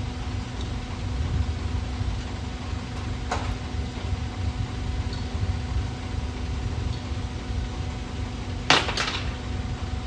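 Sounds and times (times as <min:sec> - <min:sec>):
low rumble and hum: 0:00.0 - 0:10.0.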